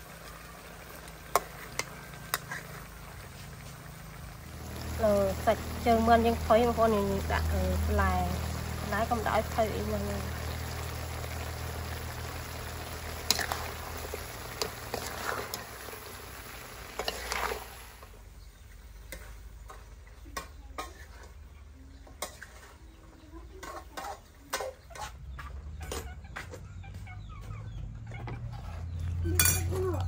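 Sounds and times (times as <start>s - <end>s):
food sizzling in a pan: 0.0s - 24.8s
spatula scraping a pan: 1.3s - 3.9s, 12.7s - 18.0s, 19.1s - 26.1s.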